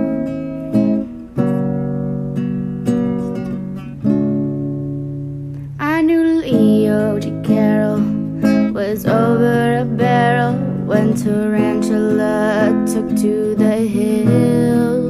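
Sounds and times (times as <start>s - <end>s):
acoustic guitar strumming: 0.0s - 15.0s
person singing: 5.8s - 15.0s.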